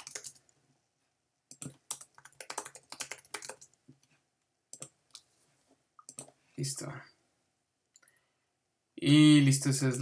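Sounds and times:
typing on computer keyboard: 0.0 - 0.4, 1.5 - 3.8, 6.1 - 6.3.

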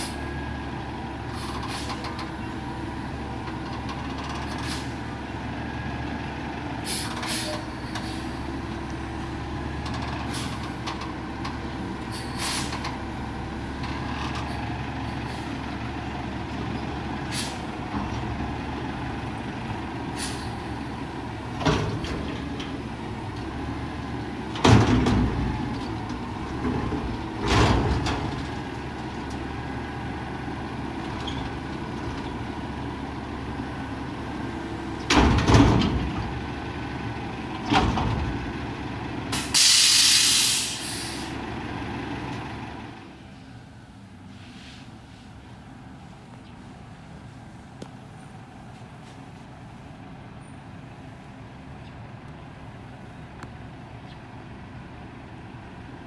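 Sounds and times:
air hissing: 39.4 - 41.3.

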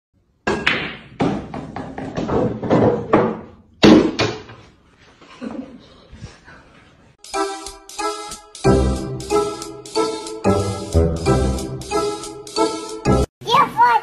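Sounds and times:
billiard balls knocking on table: 0.5 - 3.5.

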